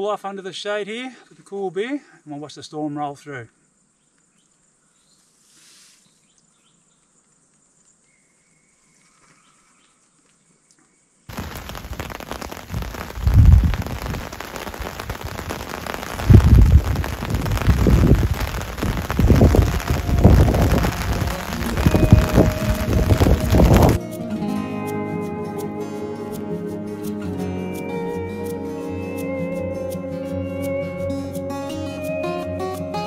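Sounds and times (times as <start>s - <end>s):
heavy rain hissing: 11.3s - 24.0s
wind gusts buffeting microphone: 11.3s - 24.0s.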